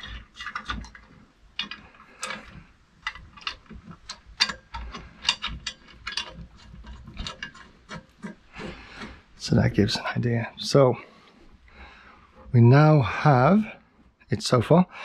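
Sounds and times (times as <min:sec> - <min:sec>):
metal parts clinking and knocking: 0:00.0 - 0:09.2.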